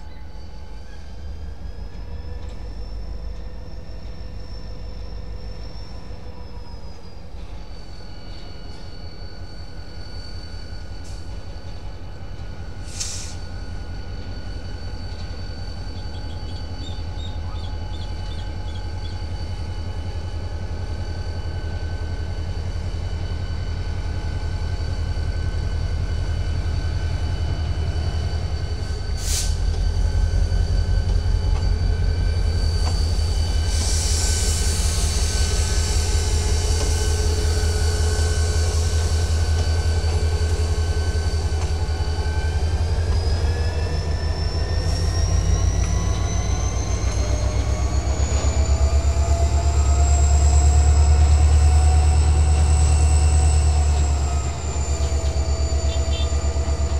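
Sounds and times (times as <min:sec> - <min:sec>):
diesel locomotive throbbing: 0:00.0 - 0:56.9
short air hisses: 0:12.8 - 0:13.5, 0:29.2 - 0:29.7, 0:33.7 - 0:36.3.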